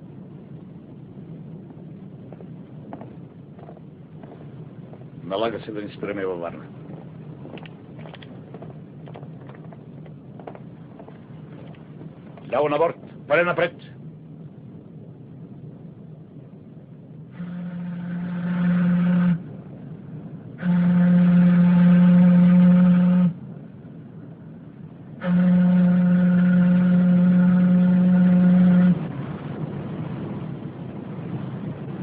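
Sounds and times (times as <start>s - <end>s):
steamship whistle blasts: 17.3s - 19.6s, 20.5s - 23.4s, 25.2s - 29.2s.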